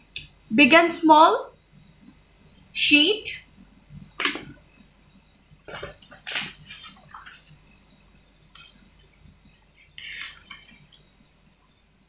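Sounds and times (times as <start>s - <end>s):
paper rustling and crinkling: 5.6s - 7.6s
plastic tablecloth crinkling: 5.6s - 7.6s.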